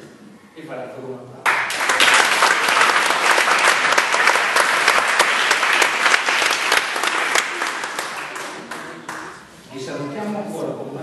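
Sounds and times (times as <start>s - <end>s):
audience applauding: 1.5s - 9.5s.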